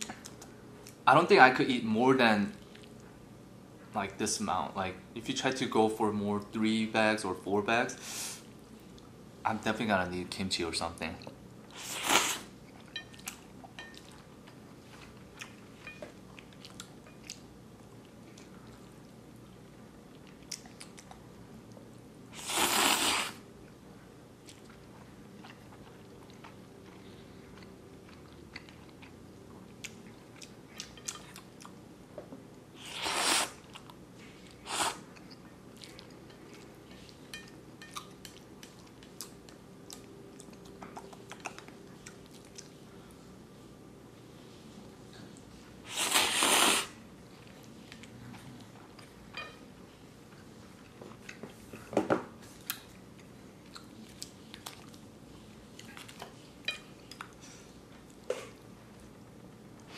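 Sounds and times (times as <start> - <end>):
noodle slurping: 22.4 - 23.4, 32.8 - 33.6, 45.9 - 47.0
wet chewing: 37.8 - 42.8.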